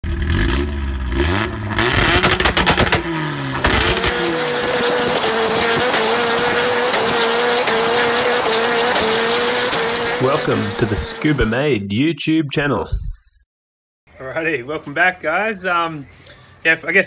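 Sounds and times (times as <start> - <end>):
car engine revving hard: 0.0 - 11.7
tyre squeal: 4.5 - 11.2.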